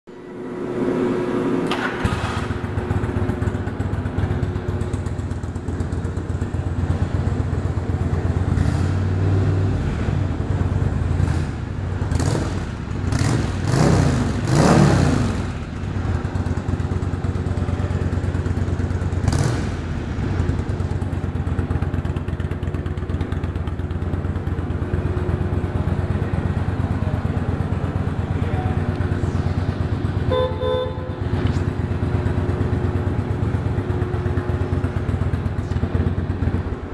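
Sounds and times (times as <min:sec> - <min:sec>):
motorcycle engine idling and revving: 0:00.1 - 0:36.9
motorcycle horn beeps: 0:30.1 - 0:31.4.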